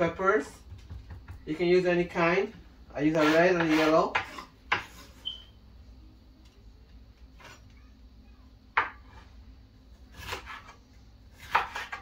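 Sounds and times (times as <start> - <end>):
knife knocking on cutting board: 0.6 - 1.4.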